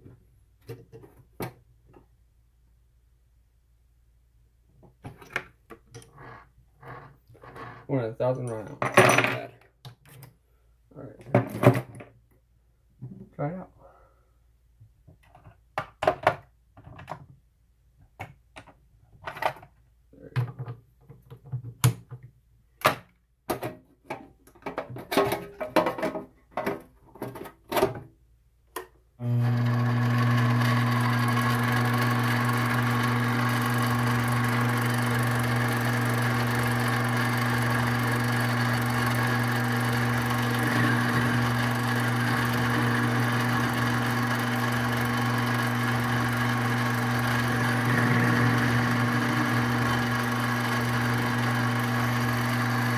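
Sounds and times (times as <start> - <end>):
lathe motor humming: 29.3 - 52.9.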